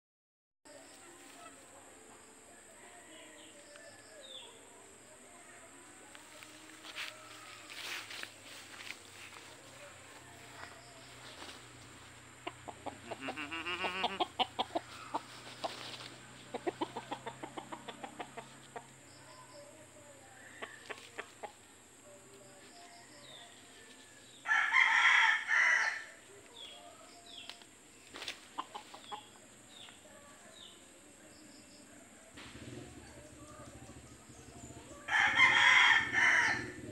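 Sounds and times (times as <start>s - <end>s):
rooster clucking and squawking: 12.4s - 18.9s.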